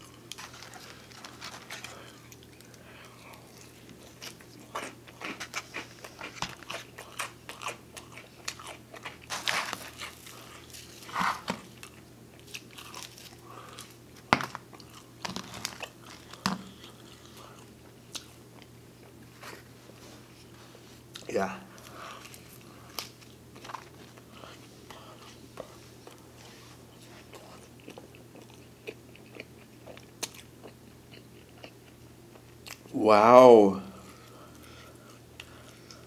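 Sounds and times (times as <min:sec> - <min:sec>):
man chewing food: 0:00.0 - 0:32.9, 0:34.1 - 0:36.0.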